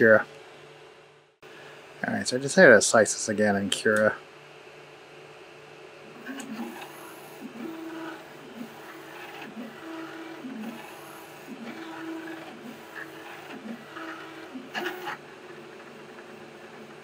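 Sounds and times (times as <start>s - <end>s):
stepper motors whining: 6.1s - 17.0s
printer rattle: 6.2s - 17.0s.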